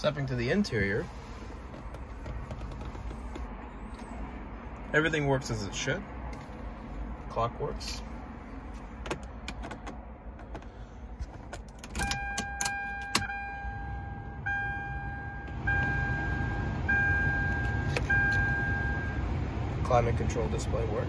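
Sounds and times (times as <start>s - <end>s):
ignition key clicking: 11.4s - 13.3s
dashboard warning chime: 12.0s - 19.3s.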